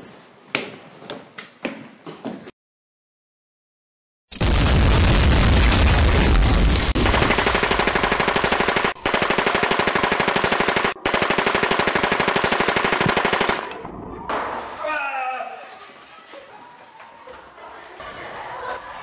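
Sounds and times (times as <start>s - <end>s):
machine gun fire: 6.8s - 13.8s.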